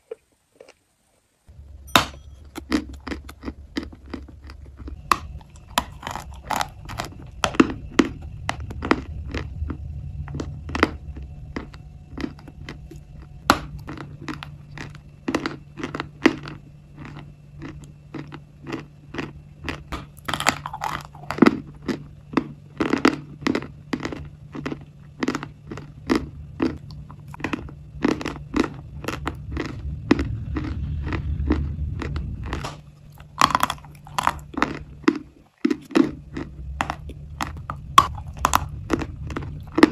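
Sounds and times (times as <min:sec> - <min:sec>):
crunchy chewing: 0:00.0 - 0:39.9
low hum: 0:01.3 - 0:39.9.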